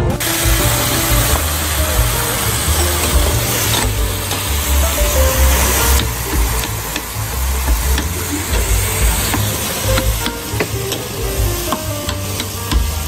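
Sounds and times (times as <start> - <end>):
batter sizzling on a griddle: 0.2 - 13.0.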